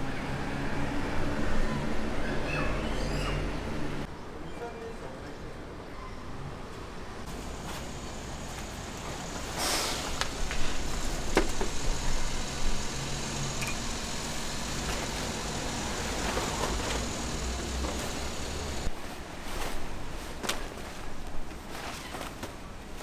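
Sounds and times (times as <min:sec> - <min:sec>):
low outdoor rumble: 0:07.3 - 0:19.0
canvas cover rustling and flapping: 0:18.8 - 0:23.0.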